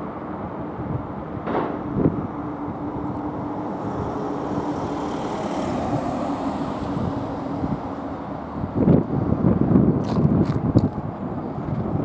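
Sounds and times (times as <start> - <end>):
road traffic on a bridge: 0.0 - 12.0.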